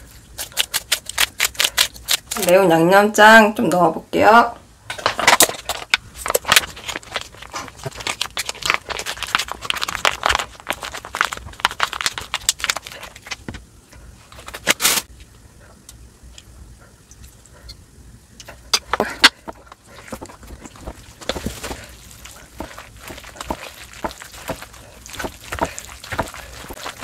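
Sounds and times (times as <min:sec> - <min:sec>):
plastic pouch crinkling: 0:06.2 - 0:13.4, 0:20.3 - 0:27.0.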